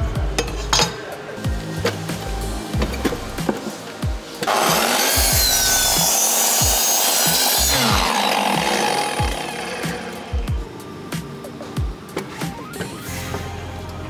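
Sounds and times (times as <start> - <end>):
background music with beat: 0.0 - 14.0
power saw cutting wood: 4.4 - 10.5.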